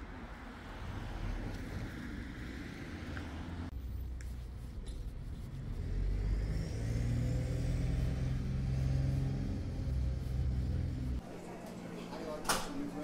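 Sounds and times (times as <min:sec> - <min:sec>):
car engine humming: 0:05.5 - 0:11.2.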